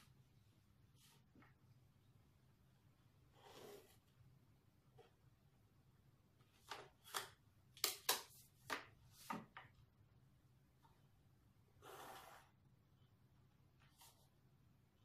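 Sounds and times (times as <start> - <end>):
pencil stroke along ruler edge: 11.8 - 12.5.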